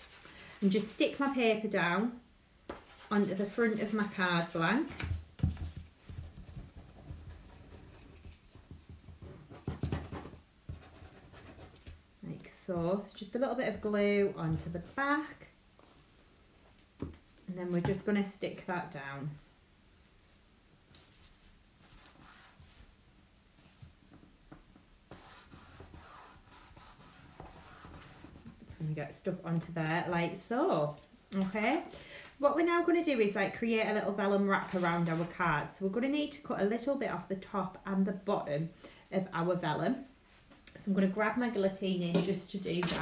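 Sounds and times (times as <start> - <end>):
paper sliding and rubbing: 21.0 - 22.9, 34.6 - 35.4.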